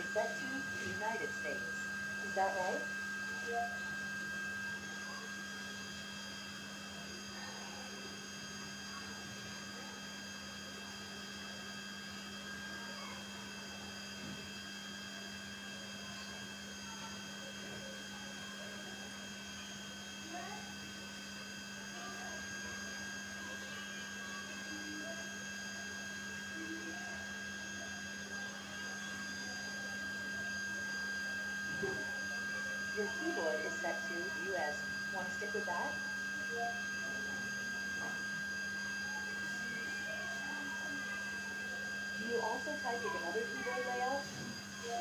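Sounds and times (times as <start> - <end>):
high steady whine: 0.0 - 6.8, 21.9 - 45.0
electrical hum: 0.0 - 45.0.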